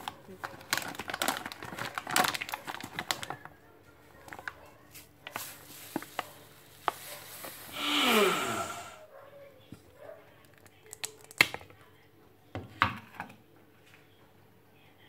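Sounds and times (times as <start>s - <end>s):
plastic bag crinkling: 0.0s - 3.5s, 4.2s - 8.4s.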